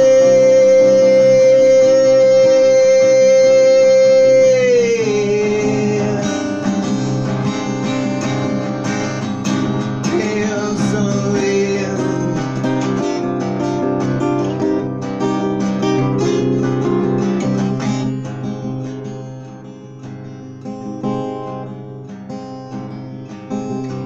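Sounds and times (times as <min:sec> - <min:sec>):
man singing long note: 0:00.0 - 0:06.6, 0:10.0 - 0:12.4
acoustic guitar strumming: 0:00.0 - 0:24.0.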